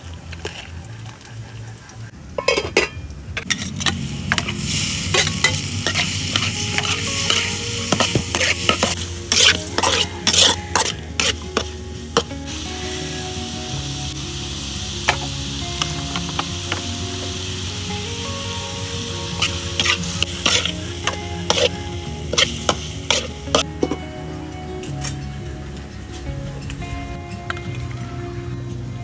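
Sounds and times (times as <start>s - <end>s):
metal spatula scraping a wok: 2.4s - 12.4s, 19.4s - 23.6s
food sizzling in a wok: 3.4s - 23.7s.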